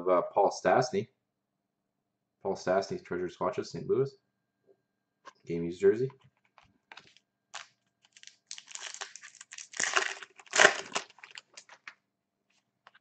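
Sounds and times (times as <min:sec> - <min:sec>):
foil pack crinkling: 0:06.9 - 0:12.0.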